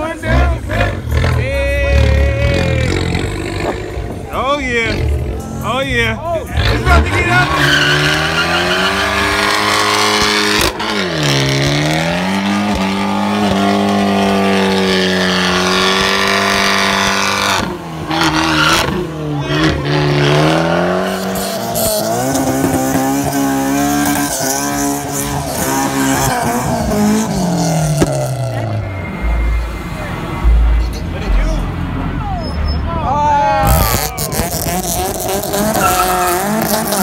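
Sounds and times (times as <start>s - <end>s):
car engine revving: 0.0s - 32.3s, 33.5s - 37.0s
tyres squealing: 6.6s - 11.6s, 32.2s - 37.0s.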